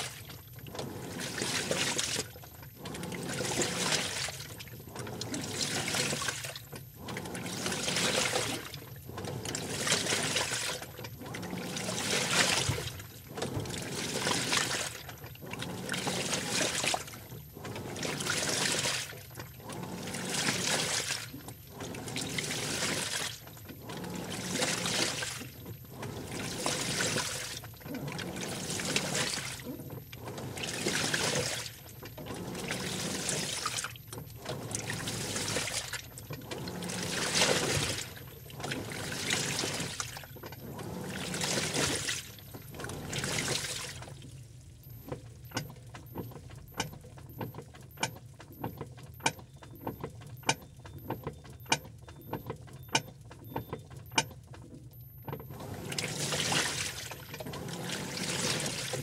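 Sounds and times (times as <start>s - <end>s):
water and clothes sloshing in drum: 0.0s - 59.0s
faint high electronic tone: 44.7s - 58.8s.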